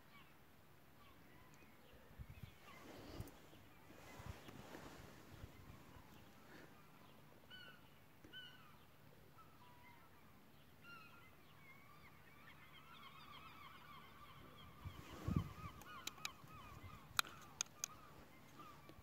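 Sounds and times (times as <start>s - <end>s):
flock of birds calling: 9.4s - 19.0s.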